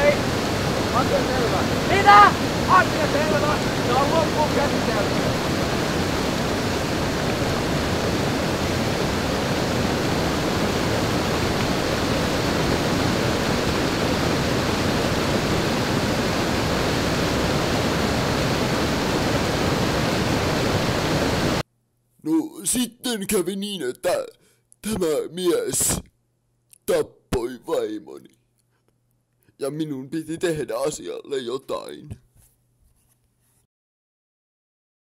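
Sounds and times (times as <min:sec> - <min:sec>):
loud rushing noise: 0:00.0 - 0:21.6.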